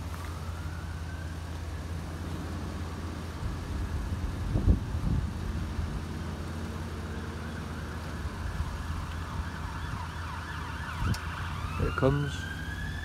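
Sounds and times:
level crossing alarm wailing: 0:07.5 - 0:13.0.

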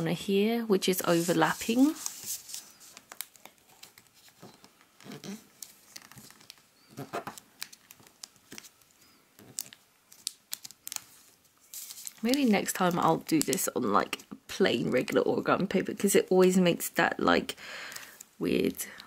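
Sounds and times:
paper crinkling while folded: 0:01.0 - 0:15.2.

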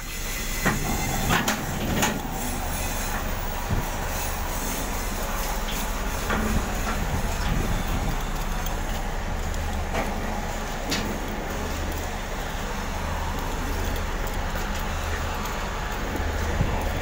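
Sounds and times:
constant low hum: 0:00.0 - 0:17.0
pallet truck wheels rumbling on concrete: 0:00.0 - 0:17.0.

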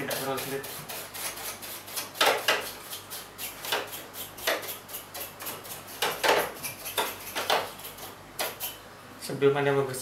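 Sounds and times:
brush scrubbing plastic: 0:00.0 - 0:06.0.

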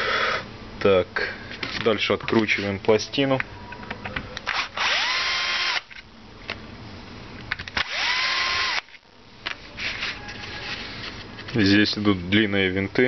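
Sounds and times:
cordless drill motor whine: 0:04.4 - 0:06.0, 0:07.8 - 0:09.0.

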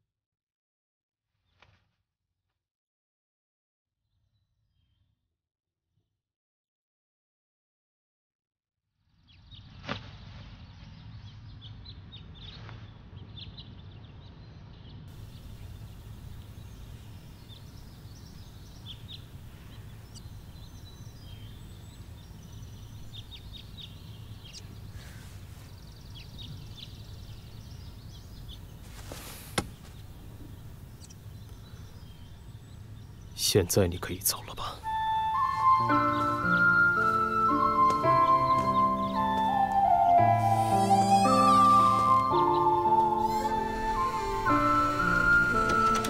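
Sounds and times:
small birds chirping: 0:09.1 - 0:46.0
low hum: 0:40.3 - 0:46.0.

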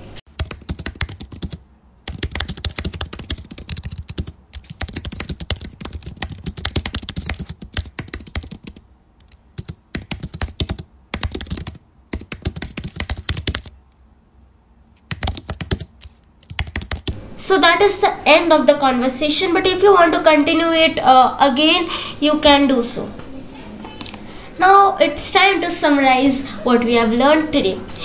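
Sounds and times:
fast typing on keyboard: 0:00.3 - 0:13.8, 0:15.0 - 0:17.2.

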